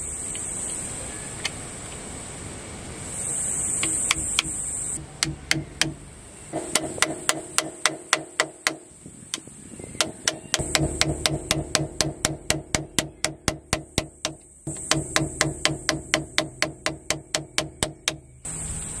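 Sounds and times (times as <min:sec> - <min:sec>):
hammer tapping metal seal: 0:03.8 - 0:09.4, 0:10.0 - 0:18.3
high-pitched buzz: 0:10.0 - 0:18.8.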